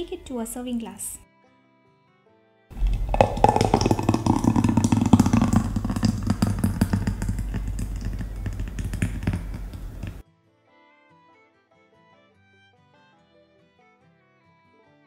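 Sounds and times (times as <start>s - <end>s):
smoothie pouring into mug: 2.7s - 10.2s
steady low hum: 2.8s - 10.2s.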